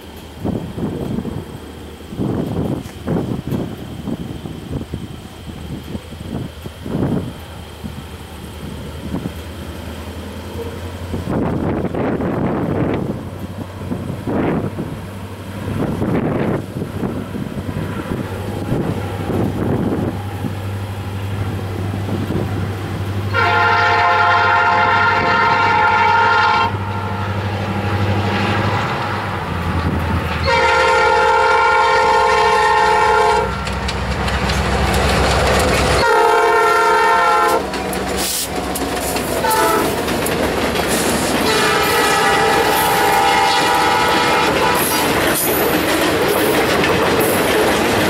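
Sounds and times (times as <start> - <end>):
train wheels clacking on rail joints: 0.0 - 23.4, 32.0 - 48.0
diesel engine rumble: 0.0 - 26.1, 26.7 - 48.0
locomotive horn blasts: 23.3 - 27.1, 30.4 - 33.6, 36.0 - 37.7, 39.4 - 40.0, 41.4 - 45.1.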